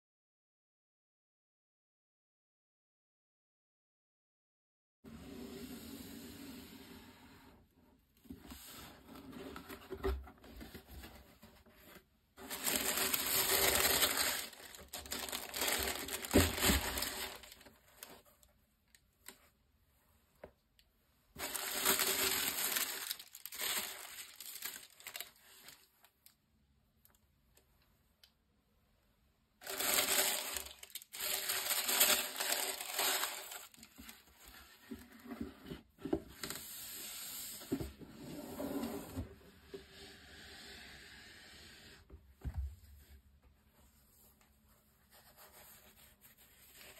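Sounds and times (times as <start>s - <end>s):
tissue paper rustling: 10.5s - 18.3s, 21.4s - 25.9s, 29.6s - 35.2s.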